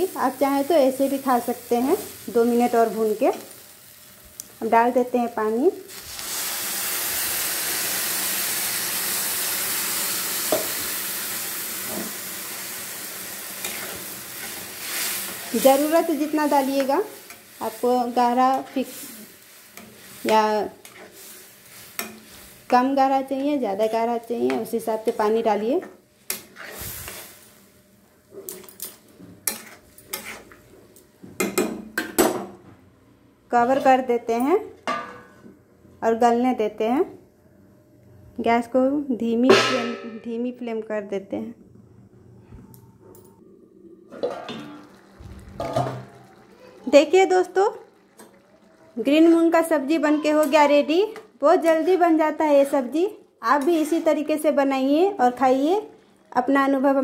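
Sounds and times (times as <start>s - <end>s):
water sizzling in hot oil: 0.0s - 23.0s, 26.4s - 27.8s, 44.5s - 51.1s
spatula clinking and scraping pot: 13.6s - 17.6s, 19.7s - 22.4s, 26.3s - 27.2s, 28.5s - 30.6s.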